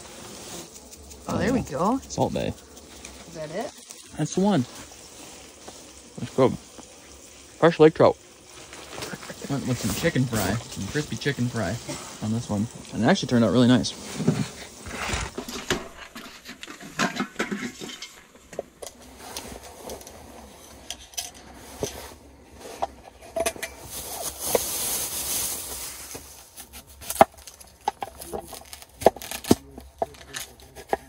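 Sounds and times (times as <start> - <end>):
soft hiss: 0.0 - 30.7
camp cooking gear clinking: 15.4 - 19.0, 22.7 - 24.6, 27.0 - 31.0.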